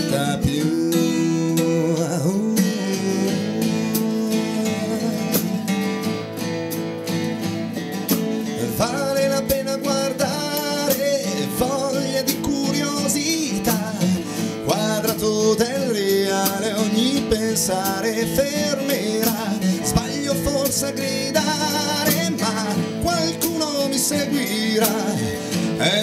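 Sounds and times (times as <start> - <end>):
person singing: 0.0 - 6.4, 8.4 - 26.0
acoustic bass guitar: 0.0 - 26.0
strummed acoustic guitars: 0.0 - 26.0
drum kit snare and cymbals: 3.8 - 6.0, 8.0 - 12.8, 19.0 - 24.2, 24.8 - 26.0.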